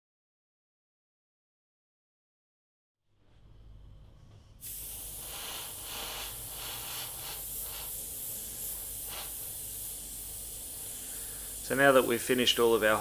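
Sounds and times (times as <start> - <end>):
airbrush spraying hiss: 4.6 - 13.0.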